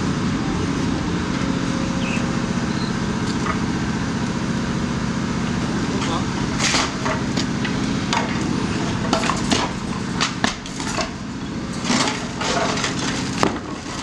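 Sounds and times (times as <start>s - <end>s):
excavator diesel engine running: 0.0s - 14.0s
timbers and masonry cracking: 5.5s - 14.0s.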